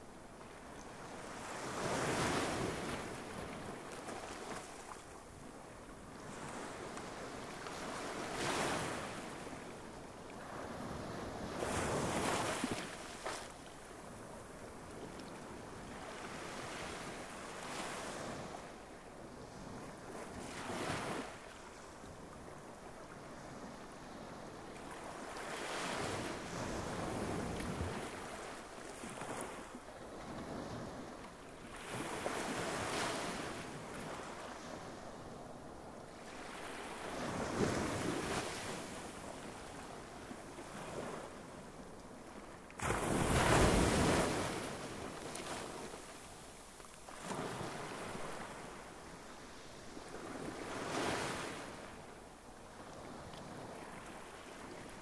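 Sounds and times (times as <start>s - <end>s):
sea waves breaking on shore: 36.1s - 52.0s.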